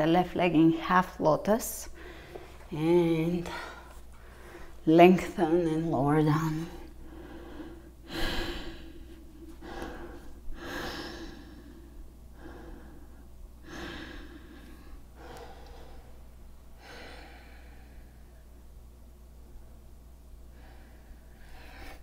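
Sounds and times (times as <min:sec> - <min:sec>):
faint low hum: 0:00.0 - 0:22.0
woman breathing in and out: 0:01.9 - 0:02.6, 0:03.4 - 0:04.8, 0:06.6 - 0:18.4, 0:20.4 - 0:22.0.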